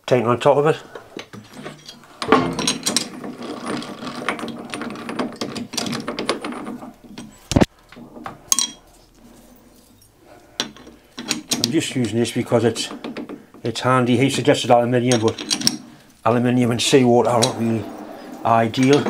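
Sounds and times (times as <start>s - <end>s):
rattling clicking metal mechanism: 1.6s - 7.7s
sharp metal knock: 2.3s - 3.1s.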